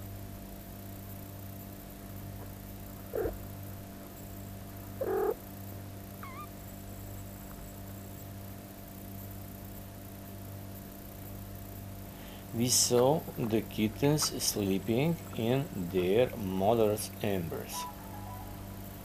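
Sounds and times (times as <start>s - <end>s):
steady low hum: 0.0s - 19.0s
kitten mewing: 3.1s - 3.4s, 5.0s - 5.4s, 6.2s - 6.5s.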